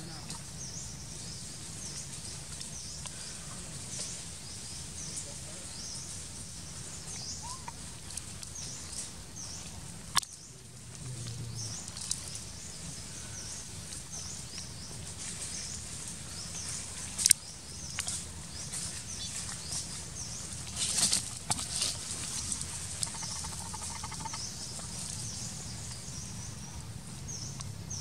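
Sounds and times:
dry leaves crackling: 0:01.1 - 0:26.1.

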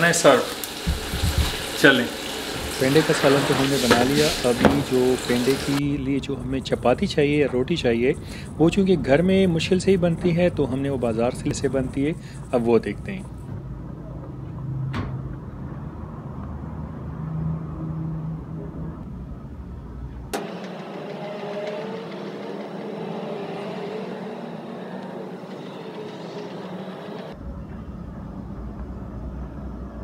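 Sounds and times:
traffic engine rumble: 0:02.7 - 0:30.0.

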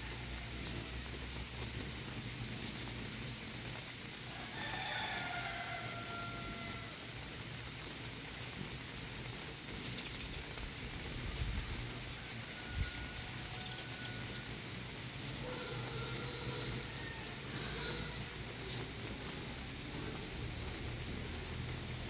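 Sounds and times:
steady background hiss: 0:00.0 - 0:22.0
hummingbird chips and chatter: 0:09.1 - 0:22.0.

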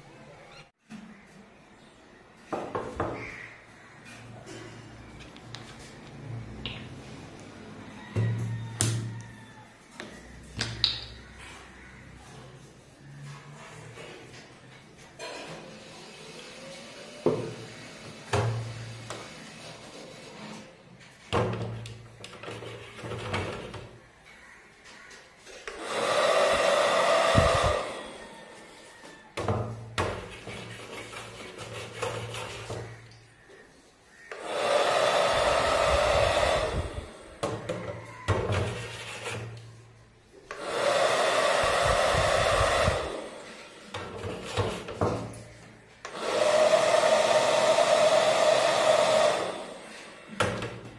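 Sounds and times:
fan motor whirring: 0:25.7 - 0:28.8, 0:34.3 - 0:39.5, 0:40.5 - 0:45.0, 0:46.0 - 0:50.5.

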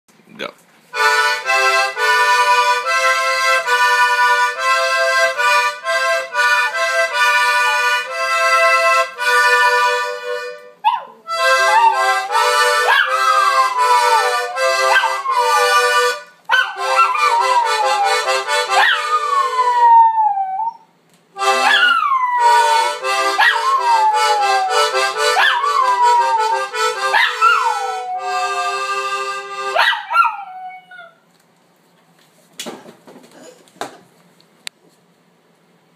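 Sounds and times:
button accordion chords: 0:00.9 - 0:19.6, 0:21.4 - 0:29.8
small dog howling: 0:10.8 - 0:12.1, 0:12.9 - 0:15.7, 0:16.6 - 0:20.9, 0:21.6 - 0:28.6, 0:29.8 - 0:31.2.

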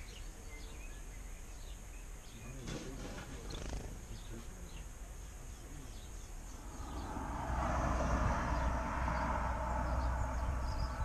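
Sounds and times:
faint bird chirps: 0:00.0 - 0:11.0
distant engine rumble: 0:05.7 - 0:11.0.

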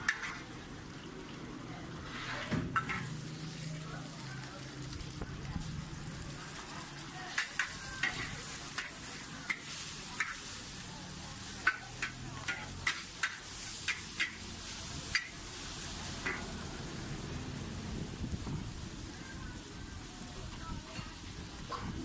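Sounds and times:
metal spatula scraping wok: 0:00.0 - 0:00.6, 0:02.0 - 0:03.7, 0:06.5 - 0:17.0
noodles frying in a wok: 0:00.0 - 0:22.0.

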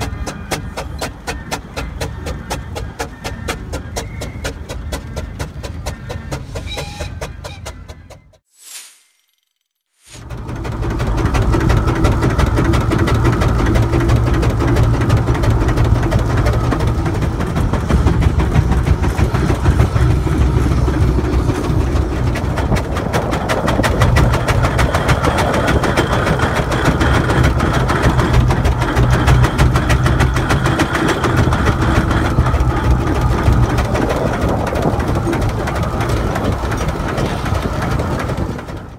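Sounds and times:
steam engine gearing clattering: 0:00.0 - 0:08.4, 0:10.3 - 0:38.9
steady low rumble: 0:10.2 - 0:38.9.

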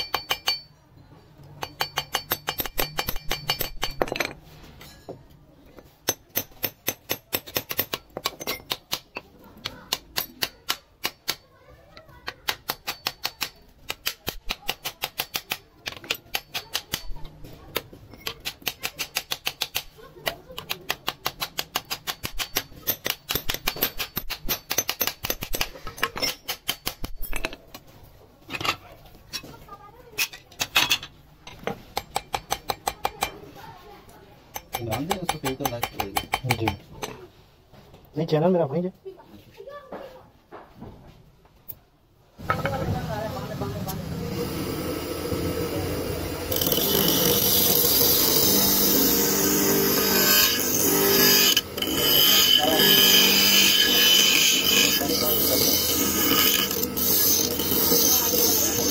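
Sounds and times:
bench grinder motor humming: 0:43.8 - 0:58.9
blade grinding on wheel: 0:44.4 - 0:58.9.

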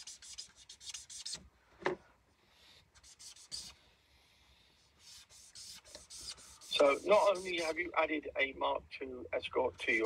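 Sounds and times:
marker pen rubbing on paper: 0:00.0 - 0:01.4, 0:03.0 - 0:03.8, 0:04.8 - 0:07.9.

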